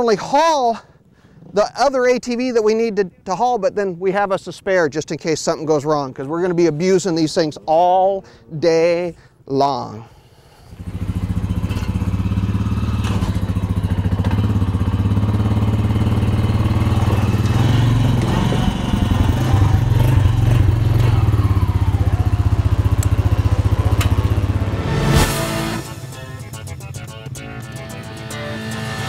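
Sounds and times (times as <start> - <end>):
atv engine idling: 10.6 - 24.7.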